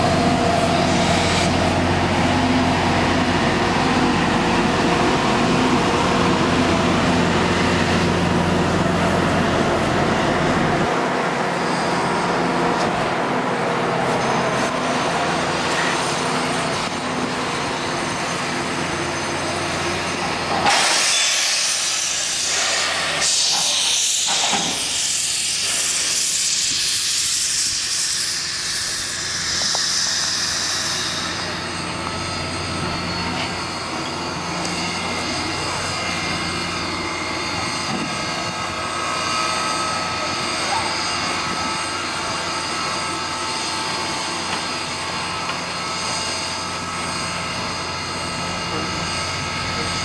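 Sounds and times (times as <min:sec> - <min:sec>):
steam locomotive running: 0:00.0 - 0:50.0
loud hiss of escaping steam: 0:15.5 - 0:32.0.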